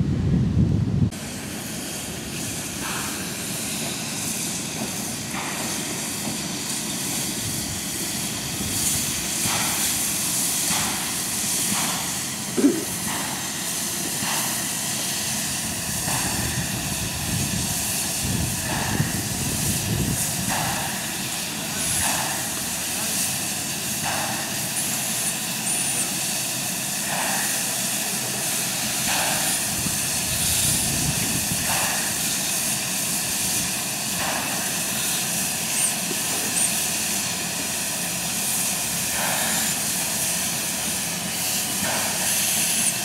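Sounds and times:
wind buffeting microphone: 0.0s - 1.2s, 15.5s - 20.9s, 29.6s - 32.4s
steam hissing: 1.1s - 43.0s
steam locomotive exhaust chuffs: 1.1s - 43.0s.

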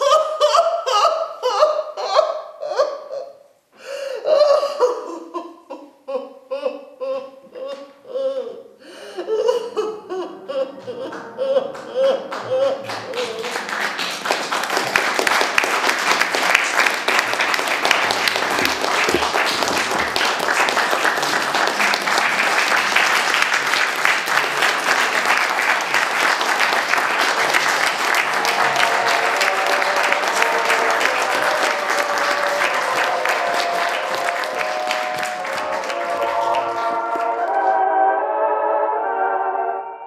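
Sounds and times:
audience applauding: 11.0s - 37.8s
music: 28.4s - 40.0s.

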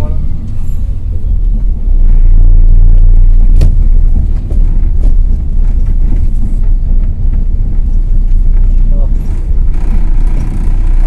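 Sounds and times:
truck diesel engine rumbling: 0.0s - 11.0s.

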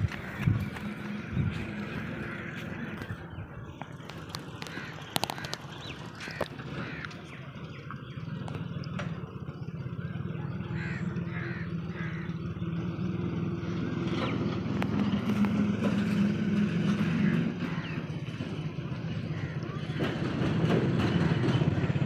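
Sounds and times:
birds cawing: 0.0s - 8.3s, 9.5s - 13.0s, 16.9s - 22.0s.

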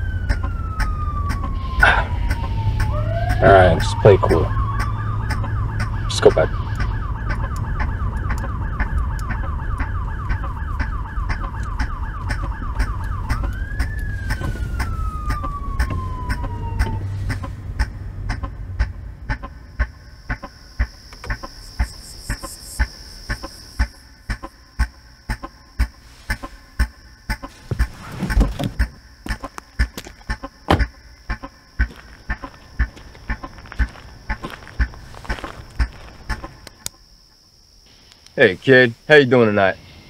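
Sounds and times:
police siren yelping and wailing: 0.0s - 18.9s
low engine rumble: 0.0s - 20.2s
regular ticking: 0.0s - 37.1s.

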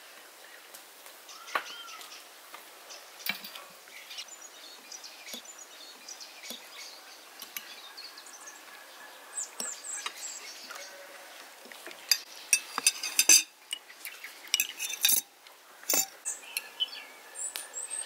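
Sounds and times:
small birds chirping: 0.4s - 18.0s
forks clinking on plates: 12.1s - 13.8s, 14.5s - 15.3s, 15.9s - 16.2s.

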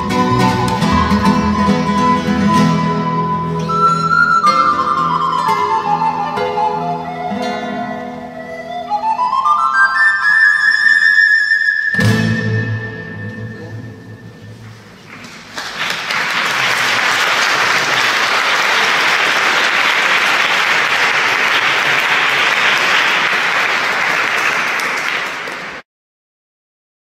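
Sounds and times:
audience applauding: 15.0s - 25.8s.

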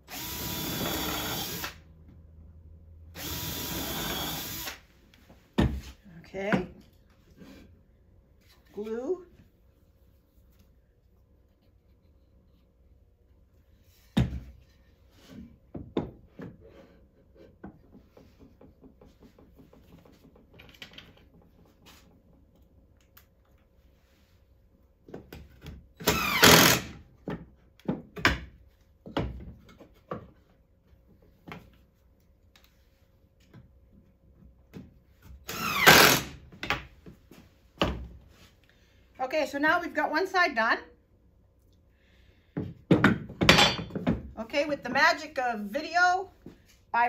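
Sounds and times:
wood and tools knocking: 15.4s - 22.5s, 42.6s - 44.4s.

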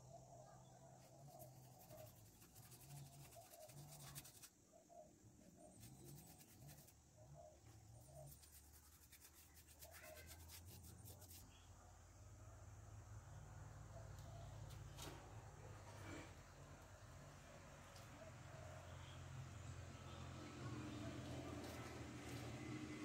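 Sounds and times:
paintbrush scratching on cement: 1.0s - 4.6s, 5.6s - 7.0s, 7.9s - 11.6s.

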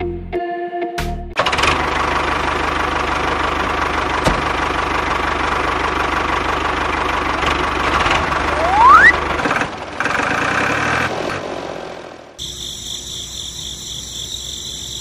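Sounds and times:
tractor engine running: 1.4s - 14.2s
loud rising whistle: 8.5s - 9.2s.

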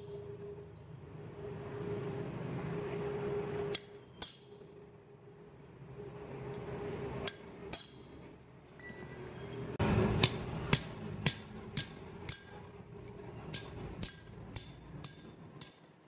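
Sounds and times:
hammer striking chisel on metal: 3.7s - 4.7s, 7.2s - 8.2s, 10.1s - 16.0s.

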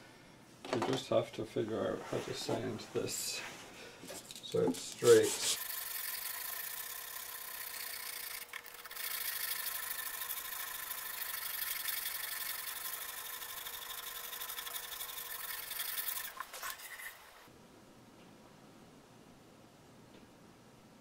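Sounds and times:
wood sanding by hand: 5.1s - 5.7s.

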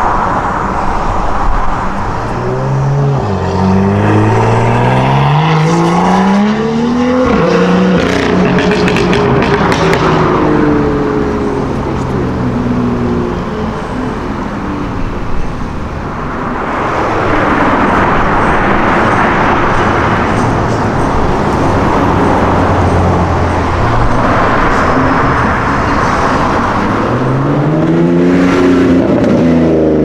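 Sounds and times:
car engine pulling away: 2.1s - 13.6s
sports car accelerating hard: 2.2s - 13.4s, 16.6s - 30.0s.

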